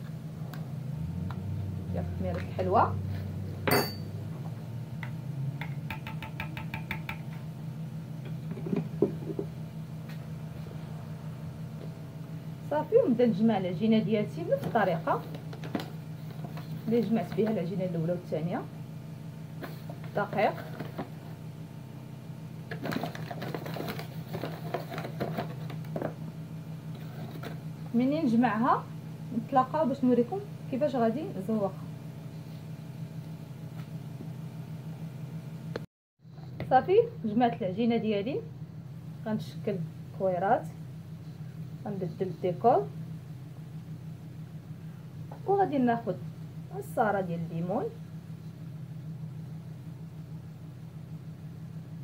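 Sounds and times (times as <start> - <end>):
spoon tapping ceramic bowl: 5.6 - 7.3
dough mixing scraping and crackling: 14.3 - 18.0, 19.6 - 21.5, 22.7 - 28.0.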